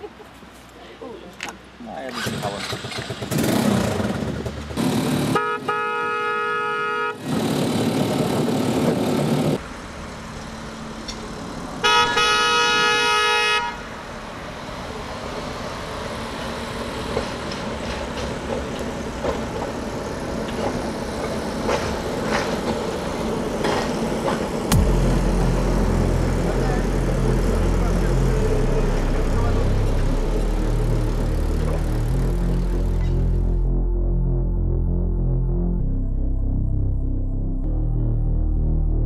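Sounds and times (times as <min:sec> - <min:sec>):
rail vehicle horn blasts: 0:05.3 - 0:07.2, 0:11.8 - 0:13.9.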